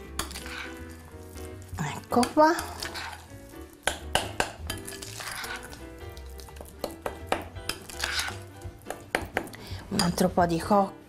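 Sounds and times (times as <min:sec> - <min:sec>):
soft background music: 0:00.0 - 0:11.0
spoon scraping glass bowl: 0:00.2 - 0:01.0, 0:01.9 - 0:03.5, 0:04.7 - 0:07.0, 0:07.7 - 0:08.6
spoon clinking against glass: 0:04.2 - 0:05.8.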